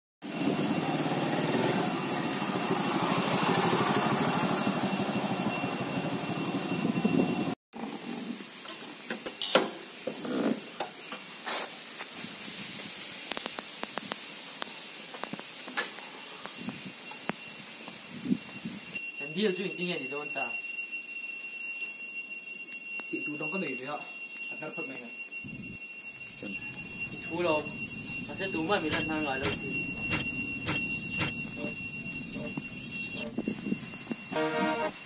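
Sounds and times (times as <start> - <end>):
motorcycle engine running: 0.4 - 7.2.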